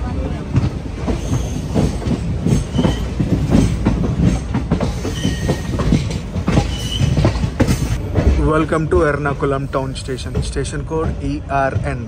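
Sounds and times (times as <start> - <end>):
train rolling rumble: 0.0 - 12.0
train wheels clacking over rail joints: 0.4 - 12.0.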